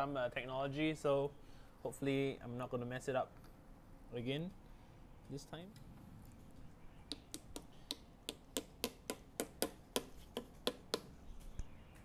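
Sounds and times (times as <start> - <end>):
sharp wooden taps: 7.1 - 11.1.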